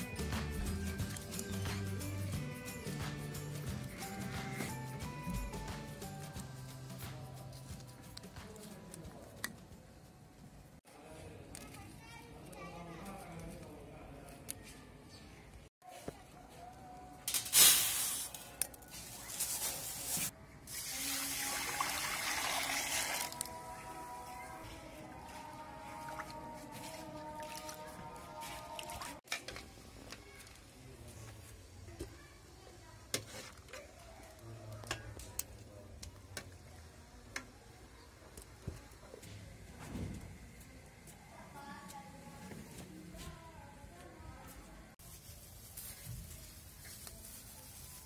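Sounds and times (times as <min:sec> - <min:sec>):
water pouring onto rice: 0:20.7 - 0:23.4.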